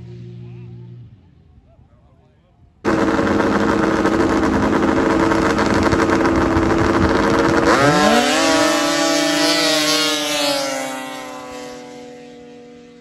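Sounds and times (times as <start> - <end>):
snowmobile engines running: 0.0 - 13.0
snowmobile engine revving up: 2.8 - 13.0.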